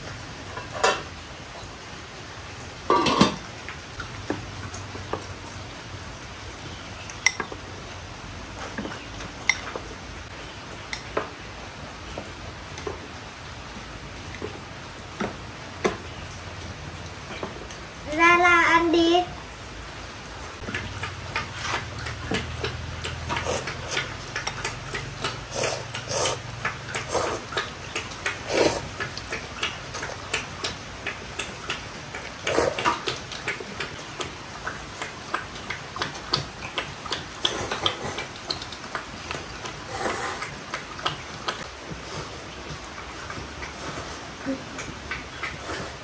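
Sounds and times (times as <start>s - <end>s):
slurping noodles: 23.3s - 24.2s, 25.2s - 27.6s, 28.4s - 29.1s, 32.4s - 33.1s, 37.4s - 38.5s, 39.7s - 40.6s, 45.5s - 46.0s.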